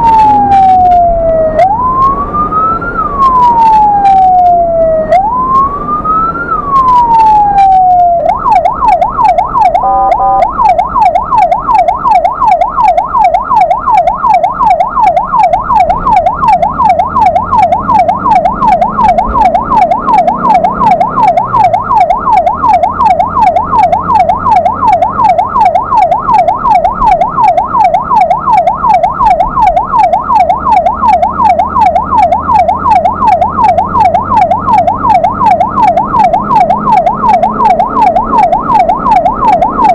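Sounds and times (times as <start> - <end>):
ambulance siren wailing and yelping: 0.0 - 39.9
engine hum: 0.0 - 39.9
horn blast: 9.8 - 10.5.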